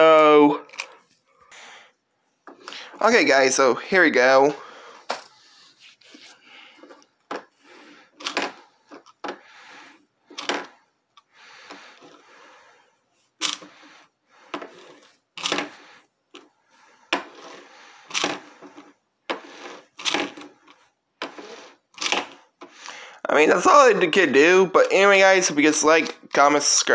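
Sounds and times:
toy car rolling on wood: 13.4s - 22.7s.

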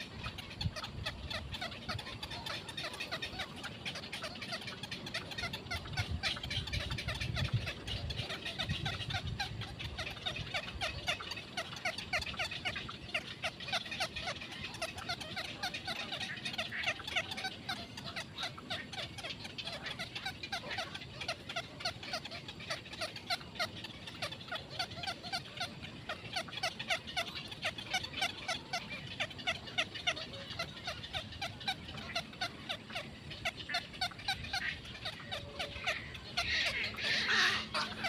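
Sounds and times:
heron nestlings chattering: 33.8s - 38.0s.

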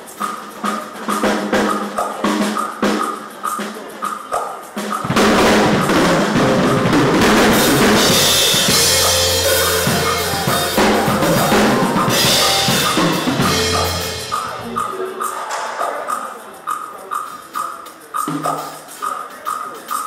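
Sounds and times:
drum kit played hard: 0.0s - 3.9s, 4.7s - 14.9s
heavy cymbal washes: 0.0s - 15.3s.

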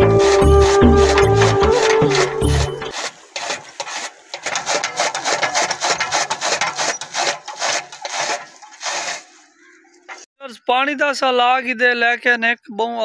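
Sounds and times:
music snatch: 0.0s - 3.0s
chaff cutter chopping fodder: 0.0s - 10.3s.

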